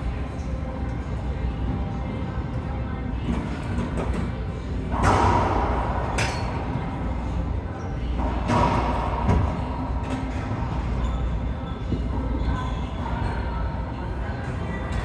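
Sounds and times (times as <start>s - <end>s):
racquetball striking racquets and walls: 4.9s - 6.8s, 8.2s - 10.2s.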